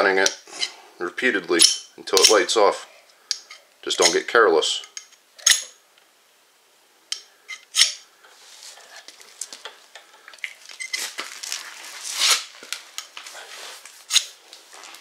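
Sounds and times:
ferro rod scraped with knife blade: 0:14.1 - 0:14.4.

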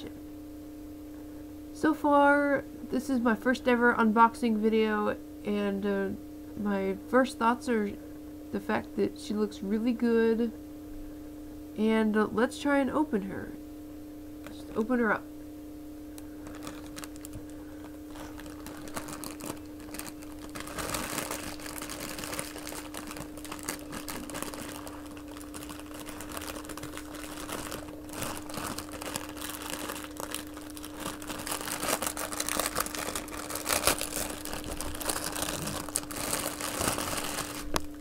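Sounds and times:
faint hum: 0:00.0 - 0:38.0
plastic bag crinkling: 0:16.1 - 0:38.0.

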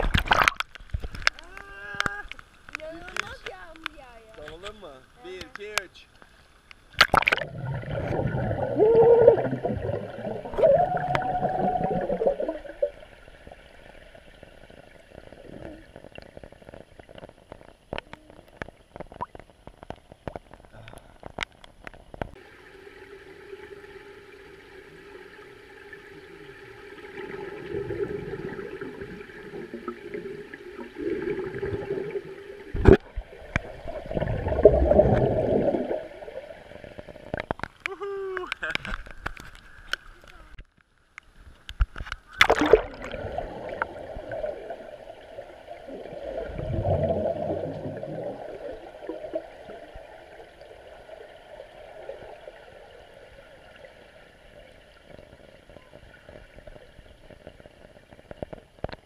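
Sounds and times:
rain ticking on water surface: 0:00.0 - 0:22.5, 0:55.0 - 0:59.0
underwater air bubbles gurgling: 0:07.0 - 0:17.6, 0:22.3 - 0:37.7, 0:42.4 - 0:58.8.

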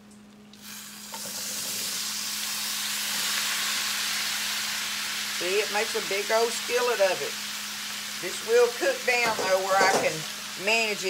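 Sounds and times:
vegetables sizzling in grease: 0:00.6 - 0:11.0.

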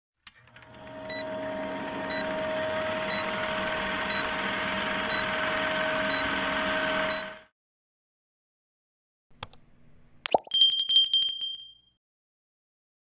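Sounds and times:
film projector clatter: 0:00.3 - 0:07.4.

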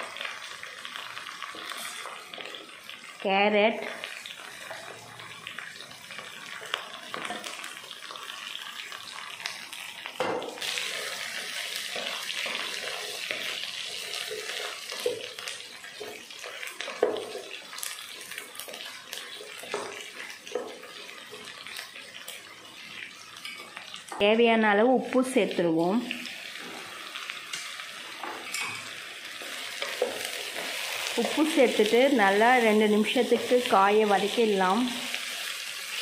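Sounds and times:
vegetables sizzling in oil: 0:00.0 - 0:36.0
wooden spatula stirring: 0:10.8 - 0:23.6.

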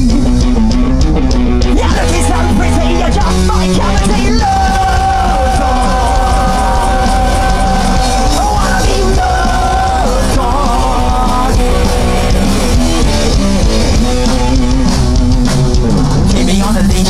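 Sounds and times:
bass guitar: 0:00.0 - 0:17.0
drums: 0:00.0 - 0:17.0
punk rock band playing loudly: 0:00.0 - 0:17.0
person singing: 0:01.7 - 0:13.2.

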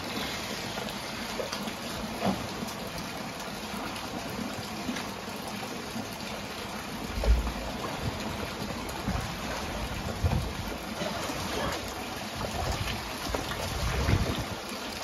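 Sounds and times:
water gushing and splashing: 0:00.0 - 0:15.0.

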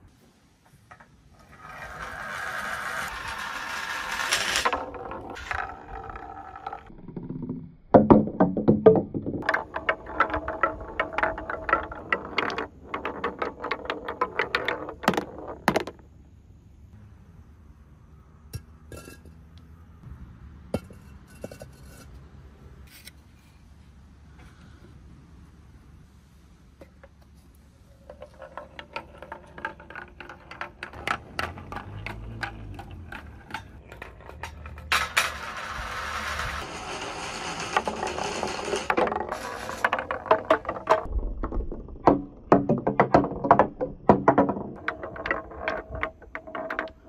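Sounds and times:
balls clacking through wooden blocks: 0:00.0 - 0:17.0, 0:26.7 - 0:47.0
balls rolling on metal rails: 0:00.0 - 0:17.0, 0:18.0 - 0:20.0, 0:20.6 - 0:23.1, 0:26.7 - 0:47.0.

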